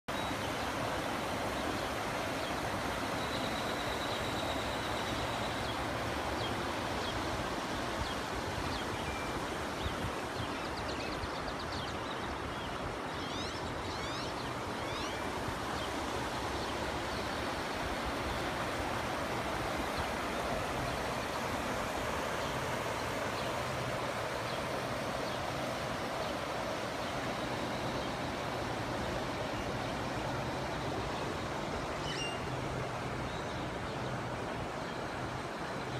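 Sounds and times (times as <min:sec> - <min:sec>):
floodwater rushing: 0:14.6 - 0:35.9.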